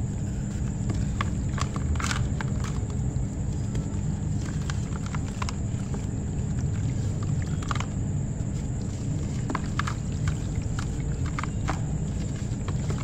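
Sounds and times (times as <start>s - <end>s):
steady low rumble: 0.0s - 13.0s
wet ash crumbling by hand: 0.0s - 13.0s.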